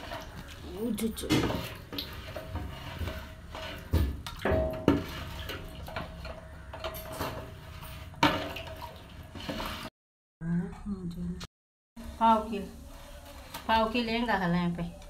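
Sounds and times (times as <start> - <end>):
liquid sloshing: 0.0 - 9.9
paddle scraping metal pan: 0.0 - 9.9.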